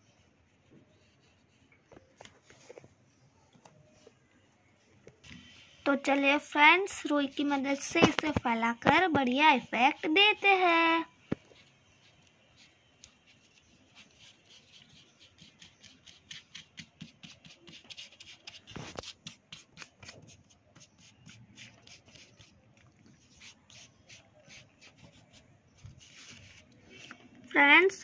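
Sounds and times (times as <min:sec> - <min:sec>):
cotton wool rubbing on paper: 0:13.3 - 0:22.5.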